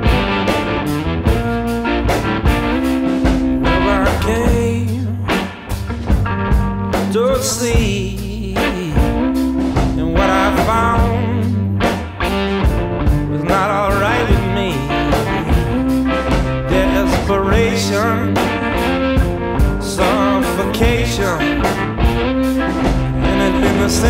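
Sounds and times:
blues-rock song with guitar: 0.0s - 24.0s
steady drum beat: 0.0s - 24.0s.

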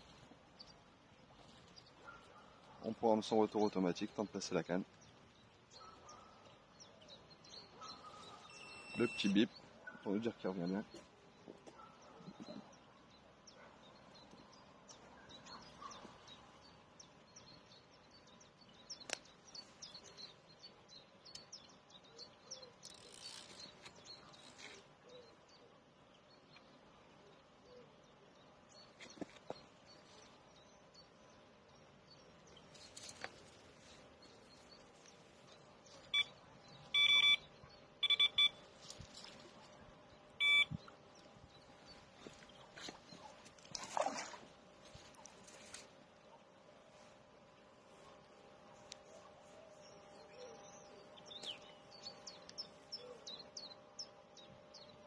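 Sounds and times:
faint birds chirping: 0.0s - 55.0s
short electronic beeps: 8.4s - 9.4s, 36.1s - 38.6s, 40.4s - 40.9s.

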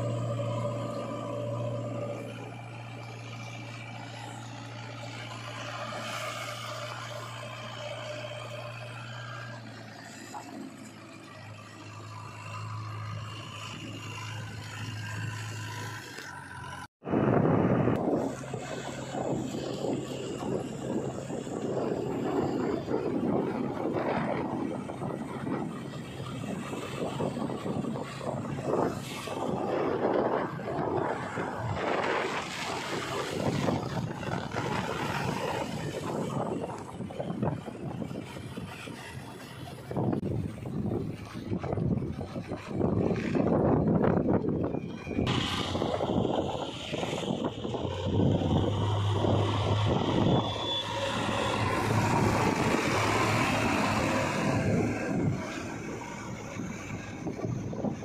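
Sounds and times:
diesel engine running: 0.0s - 58.0s
wind buffeting microphone: 17.0s - 58.0s.

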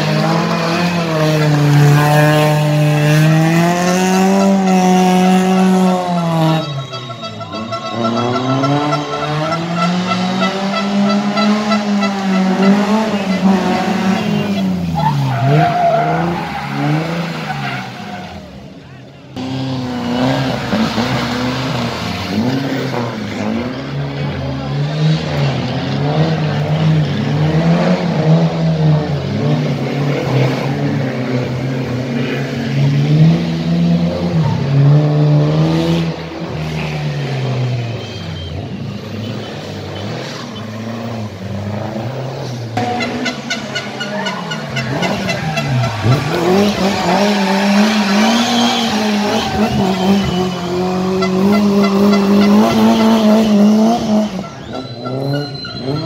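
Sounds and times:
spectators talking: 0.0s - 33.3s, 35.5s - 56.0s
rally car engines revving: 0.0s - 56.0s.

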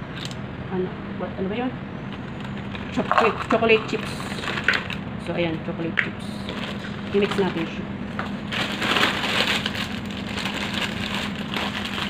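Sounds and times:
steady low hum: 0.0s - 12.0s
plastic bag crinkling: 2.2s - 5.0s, 6.4s - 7.8s, 8.4s - 12.0s.

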